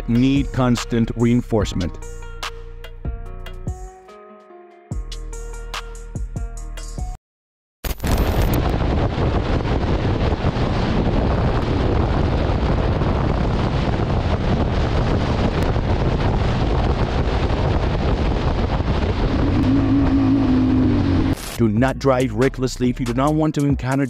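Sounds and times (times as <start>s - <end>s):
wind rush on microphone: 8.0s - 21.6s
road noise: 9.8s - 21.6s.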